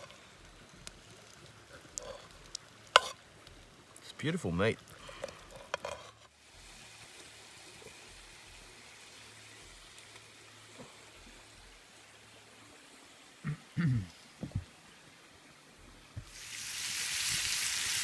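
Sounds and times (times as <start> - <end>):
meat sizzling in a pan: 16.3 - 18.0.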